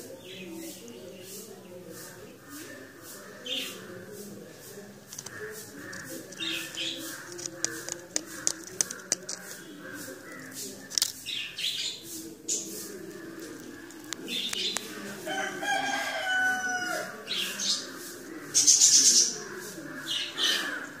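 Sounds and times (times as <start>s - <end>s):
hissy rustling: 0.6s - 16.2s
rooster crowing: 14.9s - 17.4s.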